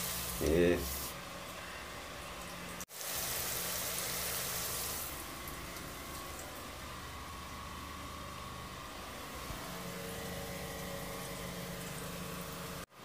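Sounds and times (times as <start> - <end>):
onions sizzling in oil: 0.0 - 1.2, 2.9 - 6.2.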